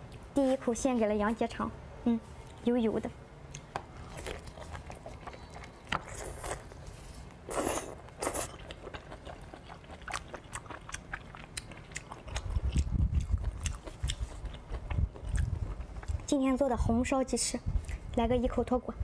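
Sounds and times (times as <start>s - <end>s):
wet chewing and biting: 3.5s - 16.3s.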